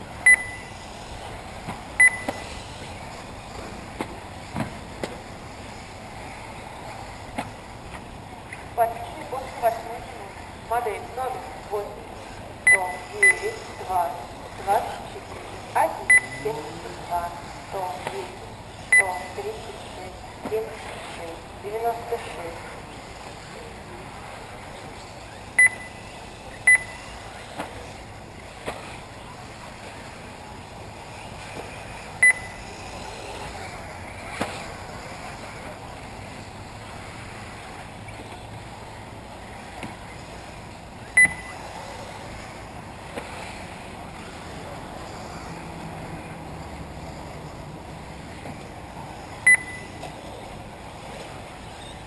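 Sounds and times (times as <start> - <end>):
short electronic beeps: 0.2 - 0.8, 2.0 - 2.5, 12.6 - 13.6, 16.1 - 16.6, 18.9 - 19.4, 25.5 - 27.0, 32.2 - 32.6, 41.1 - 41.6, 49.4 - 50.0.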